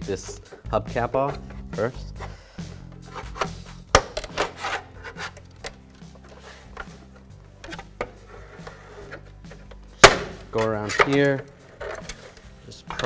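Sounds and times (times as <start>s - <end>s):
pry bar scraping hubcap: 0.1s - 5.4s.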